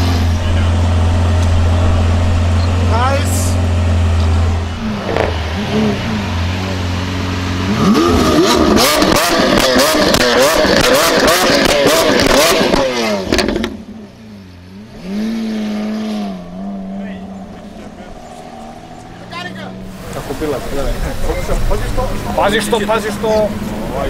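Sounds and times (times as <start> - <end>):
sports car engine revving: 0.0 - 24.0
exhaust pops and crackles: 8.4 - 13.9.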